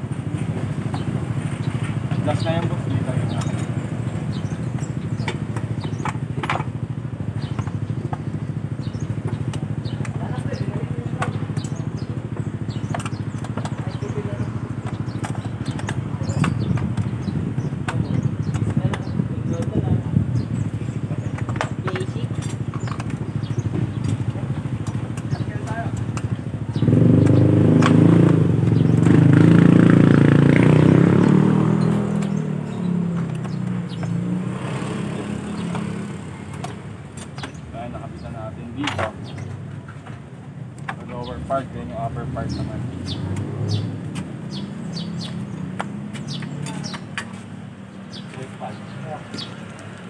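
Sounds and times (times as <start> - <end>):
small motorcycle engine idling: 0.0 - 43.9
clicks and taps of parts: 38.8 - 41.1.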